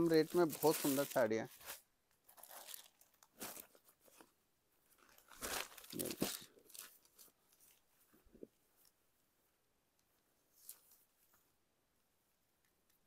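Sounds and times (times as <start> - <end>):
fabric rustling and crinkling: 0.0 - 11.6.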